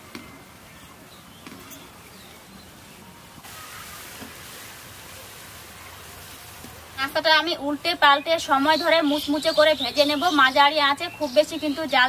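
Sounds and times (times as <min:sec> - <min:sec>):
food sizzling in hot oil: 0:03.4 - 0:10.5.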